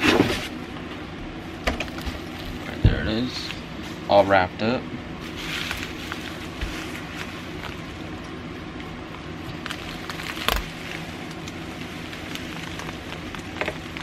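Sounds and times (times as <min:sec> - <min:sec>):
bubble wrap crinkling: 0:01.9 - 0:04.1, 0:05.1 - 0:14.0.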